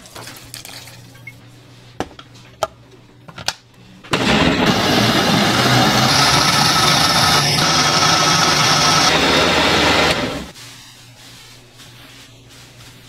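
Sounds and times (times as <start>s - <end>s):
motor-driven machine running: 4.2s - 10.5s.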